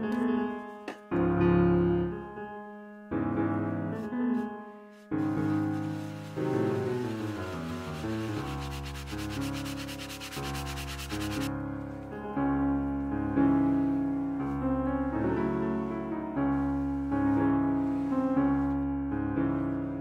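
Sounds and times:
piano music: 0.0s - 20.0s
brush scrubbing leather: 5.2s - 11.5s.

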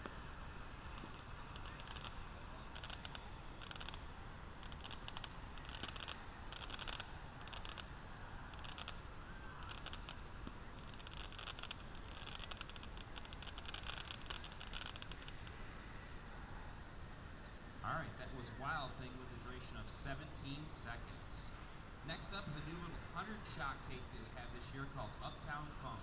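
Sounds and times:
distant firework crackling: 0.0s - 15.8s
low outdoor rumble: 0.0s - 26.0s.

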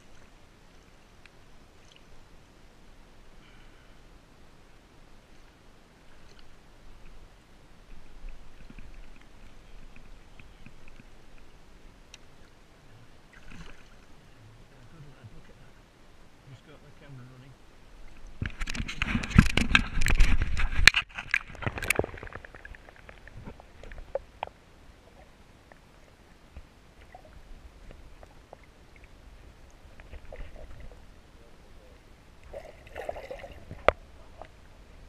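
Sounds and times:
river water splashing: 0.0s - 16.4s, 17.7s - 35.0s
faint clicks and knocks: 7.9s - 11.5s
muffled underwater noise: 27.0s - 32.8s.

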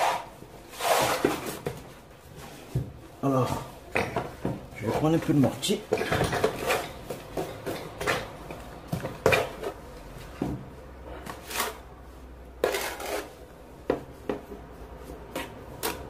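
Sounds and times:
mortar scraped on metal board: 12.6s - 13.4s.

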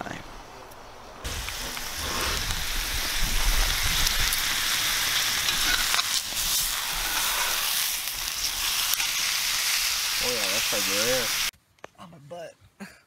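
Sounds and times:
steaks sizzling in skillet: 1.2s - 11.5s.

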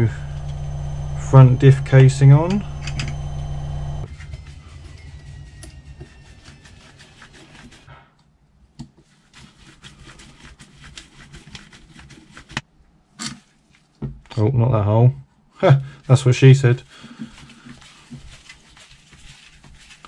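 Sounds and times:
faint low hum: 0.0s - 8.3s.

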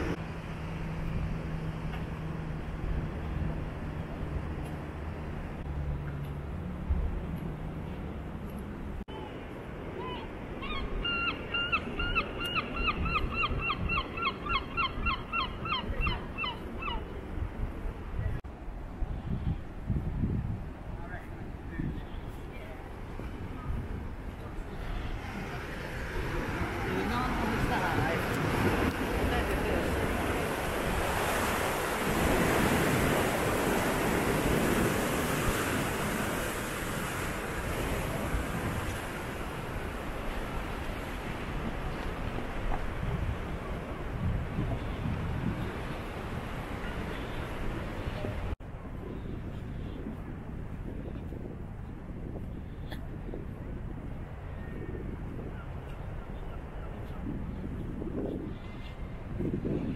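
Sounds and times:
sea wash: 0.0s - 59.9s
gull calling: 10.0s - 17.1s
wind buffeting microphone: 10.0s - 59.9s.

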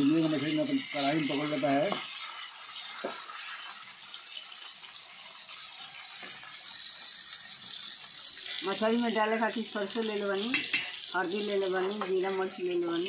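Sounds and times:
fish sizzling in hot oil: 0.0s - 13.0s
metal spatula clicking on pan: 10.4s - 11.0s.

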